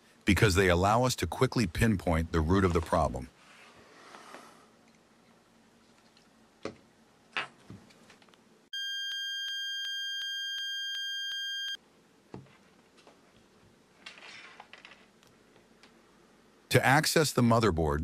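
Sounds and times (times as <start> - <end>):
high electronic beep tone: 8.8 - 11.8.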